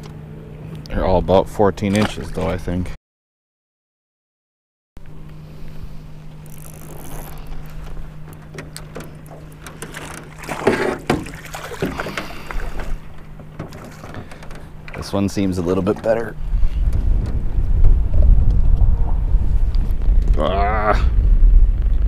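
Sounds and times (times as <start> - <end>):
steady low hum: 0.0 - 3.0, 5.0 - 22.0
sharp knocks and clicks: 8.2 - 15.0.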